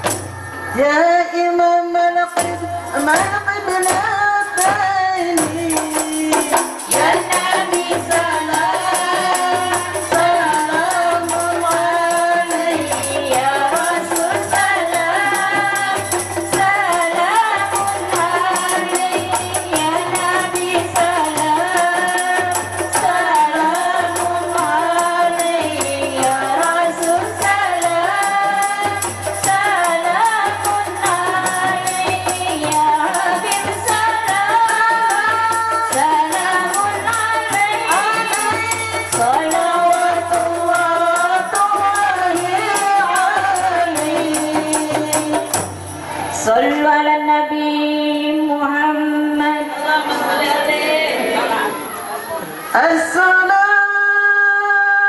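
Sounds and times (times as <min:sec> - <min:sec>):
women singing devotional song: 0:00.0 - 0:55.0
frame drums beating: 0:02.3 - 0:46.4.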